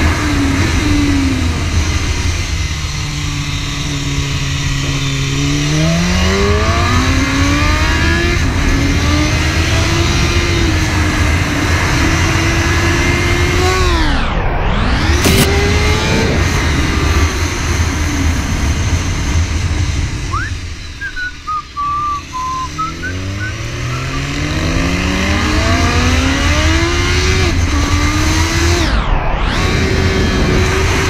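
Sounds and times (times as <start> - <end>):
motorcycle engine revving: 0.0 - 31.0
wind noise: 0.0 - 31.0
short high chirps: 20.4 - 24.3.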